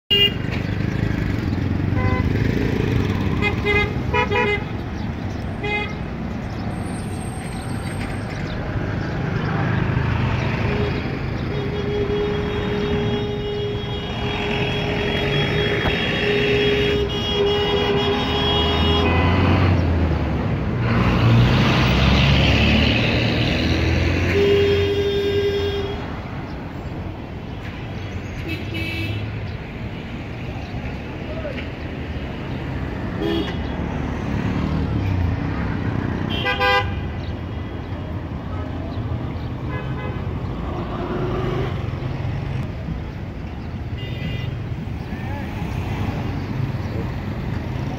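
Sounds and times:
vehicle horns honking: 0:00.1 - 0:00.5, 0:01.9 - 0:02.5, 0:03.3 - 0:04.7, 0:10.6 - 0:19.6, 0:24.2 - 0:26.1, 0:28.4 - 0:29.3, 0:33.2 - 0:33.7, 0:36.3 - 0:37.2, 0:39.6 - 0:40.4, 0:43.9 - 0:44.8
traffic engines rumbling: 0:00.1 - 0:47.9.

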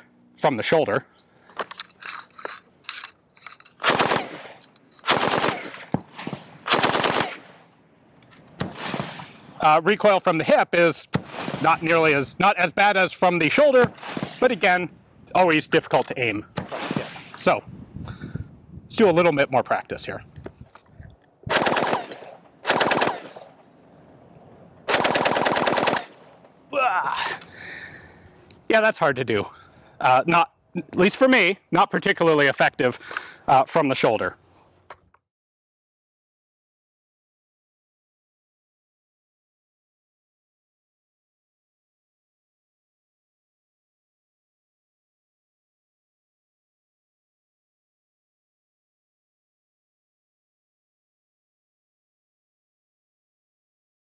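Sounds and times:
machine gun firing bursts: 0:03.8 - 0:07.6, 0:21.5 - 0:23.4, 0:24.9 - 0:26.2.

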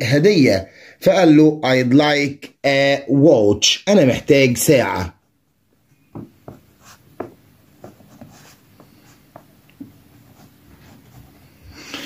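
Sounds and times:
pen writing on paper: 0:06.4 - 0:09.5.

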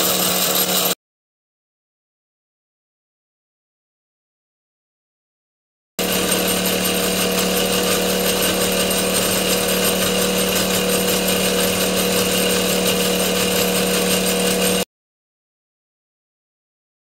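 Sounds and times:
model steam engine whirring: 0:00.0 - 0:01.0, 0:06.0 - 0:14.8.

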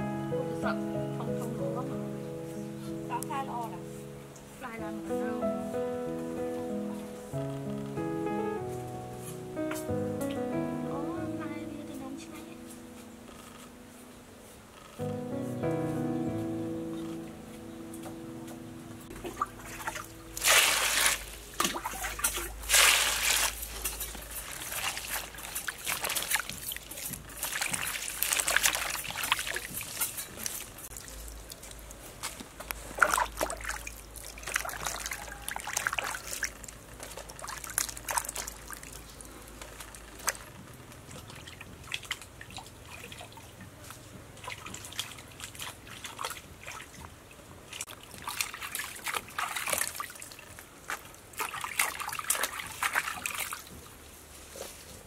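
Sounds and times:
vegetables washed in water: 0:19.2 - 0:54.2.

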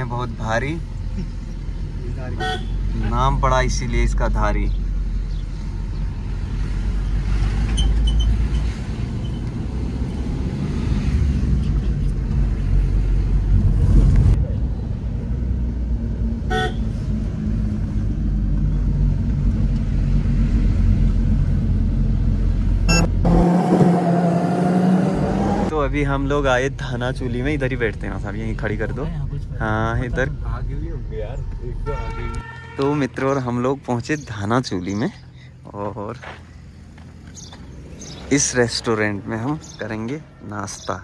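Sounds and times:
car engine and tyres rumbling: 0:00.0 - 0:41.0
car horn toot: 0:02.4 - 0:02.8, 0:16.5 - 0:16.9, 0:22.9 - 0:23.2, 0:31.8 - 0:33.0.

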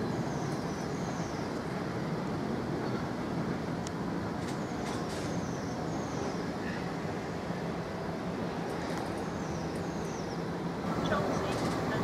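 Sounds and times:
train wheels rumbling: 0:00.0 - 0:12.0.

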